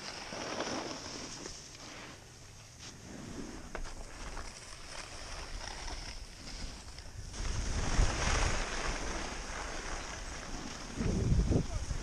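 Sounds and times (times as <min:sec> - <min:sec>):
skis hissing on snow: 0:00.0 - 0:12.0
wind rushing over microphone: 0:06.8 - 0:12.0.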